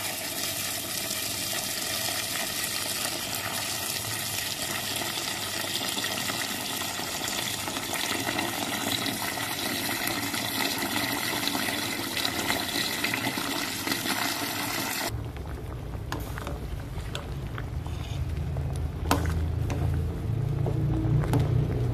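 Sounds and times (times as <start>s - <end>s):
tap water running into pot: 0.0s - 15.1s.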